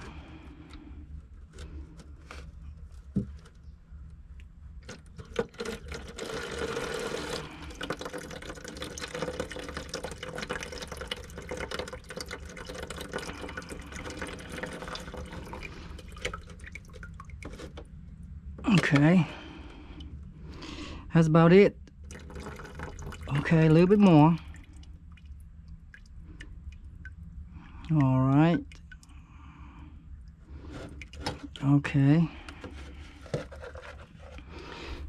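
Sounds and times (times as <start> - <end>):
water dripping from pipe: 4.4 - 17.8, 21.8 - 29.2
water trickling from pipe: 4.9 - 17.9, 21.9 - 29.2, 30.2 - 31.7.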